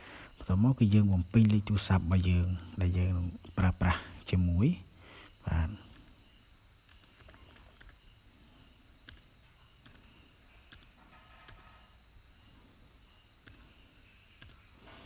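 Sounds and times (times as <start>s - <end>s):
soft clicks: 9.0s - 10.1s, 13.4s - 13.7s, 14.4s - 15.0s.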